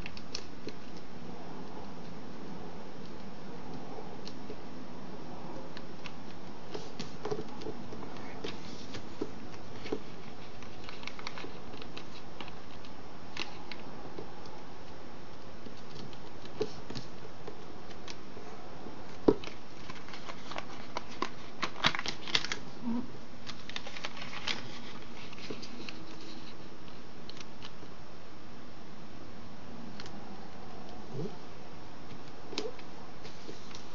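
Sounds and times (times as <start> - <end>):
paper crackling: 6.0 - 13.8, 19.1 - 22.7, 23.4 - 27.9
paper rustling and crinkling: 6.0 - 13.8, 19.2 - 22.7, 23.4 - 27.8
steady hiss: 23.9 - 33.9.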